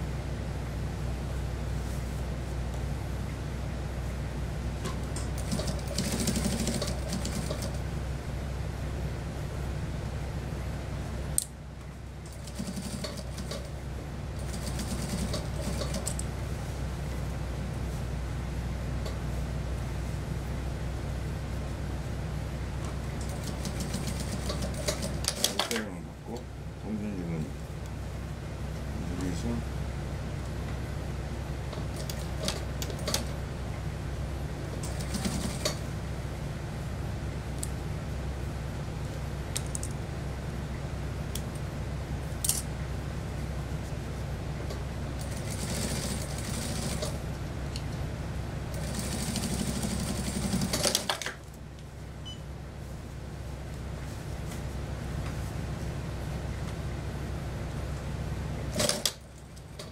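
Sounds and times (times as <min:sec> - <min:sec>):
steady low hum: 0:00.0 - 0:59.9
sewing machine stitching: 0:05.4 - 0:07.8, 0:48.8 - 0:51.3.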